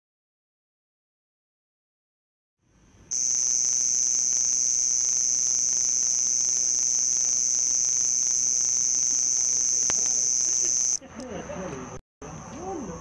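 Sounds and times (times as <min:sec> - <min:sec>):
cricket chirping: 0:03.1 - 0:11.0.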